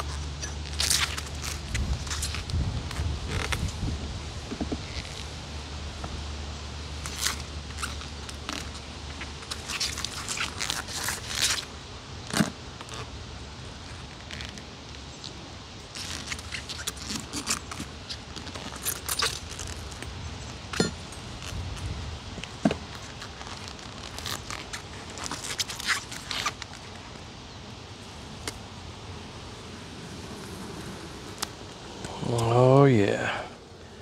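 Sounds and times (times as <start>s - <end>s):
wind rumble on microphone: 0.8s - 6.3s, 20.7s - 22.6s.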